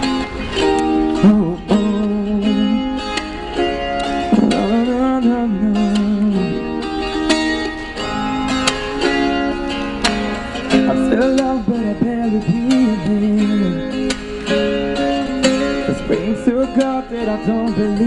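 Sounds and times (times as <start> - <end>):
acoustic guitar strumming: 0.0 - 18.0
man singing wordless runs: 10.8 - 13.9, 15.8 - 18.0.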